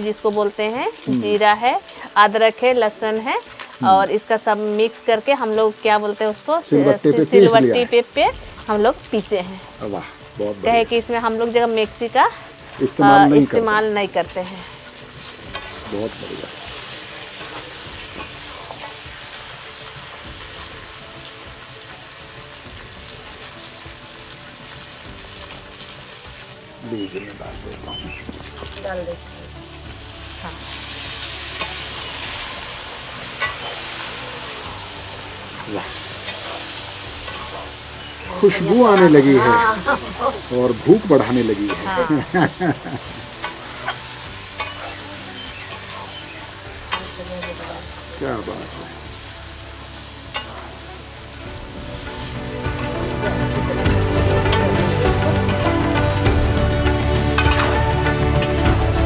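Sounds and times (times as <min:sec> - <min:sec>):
food sizzling in a pan: 0:00.0 - 0:59.0
spatula scraping a pan: 0:30.6 - 0:34.7, 0:43.2 - 0:47.6.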